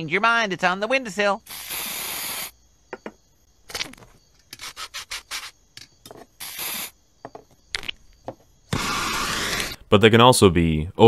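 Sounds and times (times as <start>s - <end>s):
aerosol whipped cream spray: 1.5s - 2.5s, 6.4s - 6.9s, 8.8s - 9.8s.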